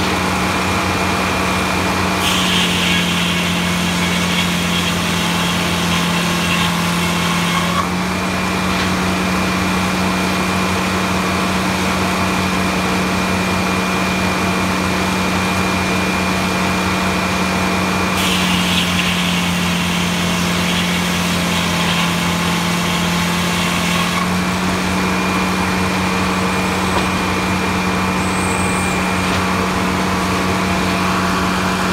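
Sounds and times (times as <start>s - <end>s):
saw blade cutting log: 0.0s - 8.0s, 18.1s - 29.5s
sawmill power unit humming: 0.0s - 31.9s.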